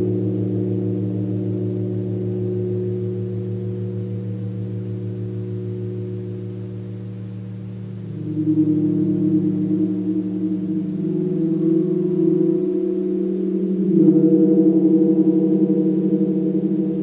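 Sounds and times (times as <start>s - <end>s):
gong resonating: 0.0s - 17.0s.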